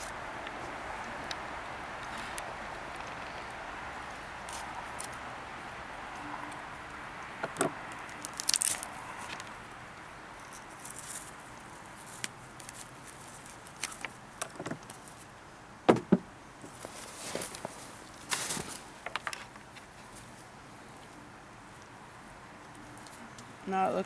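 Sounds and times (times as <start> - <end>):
sharp knocks on wooden table: 15.9 - 16.3.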